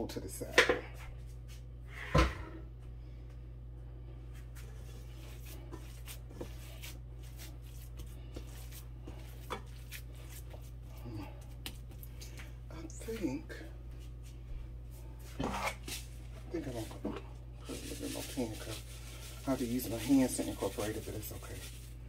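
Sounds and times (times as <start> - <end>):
steady low hum: 0.0 - 22.0
hands kneading raw meat: 4.4 - 13.4.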